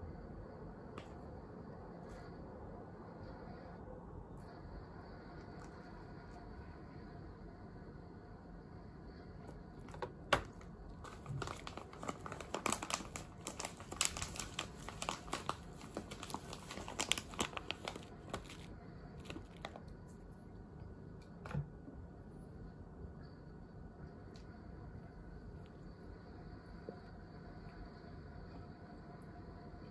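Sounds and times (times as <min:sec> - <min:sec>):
foil bag crinkling: 0:09.8 - 0:19.8.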